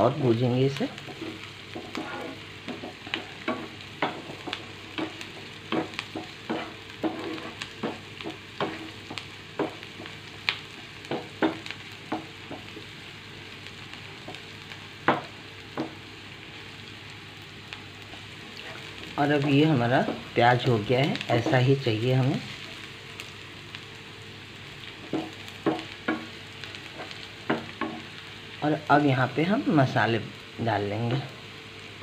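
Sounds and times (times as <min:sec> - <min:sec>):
onions sizzling in oil: 0:00.0 - 0:32.0
spatula tapping and scraping pan: 0:01.0 - 0:12.8, 0:15.0 - 0:16.1, 0:19.4 - 0:20.3, 0:25.0 - 0:28.1.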